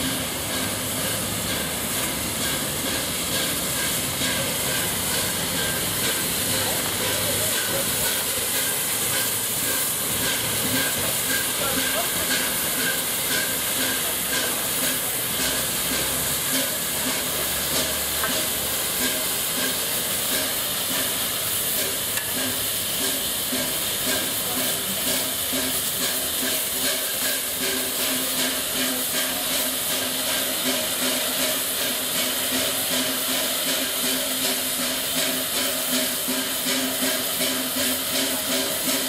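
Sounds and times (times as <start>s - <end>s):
steam hissing from locomotive: 0.0s - 39.0s.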